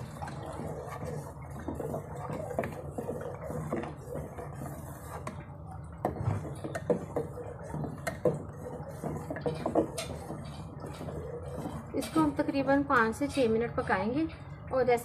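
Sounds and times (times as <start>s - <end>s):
spoon clinking and scraping pot: 6.1s - 13.6s.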